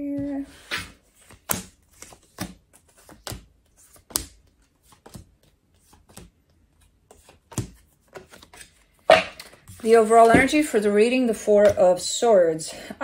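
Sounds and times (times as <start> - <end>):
cards tapping on wooden table: 9.1 - 10.6.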